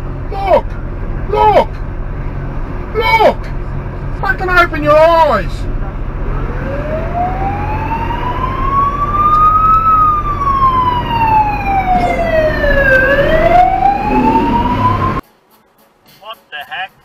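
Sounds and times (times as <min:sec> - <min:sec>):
engine and road rumble: 0:00.0 - 0:16.1
fire truck siren wailing: 0:06.0 - 0:15.2.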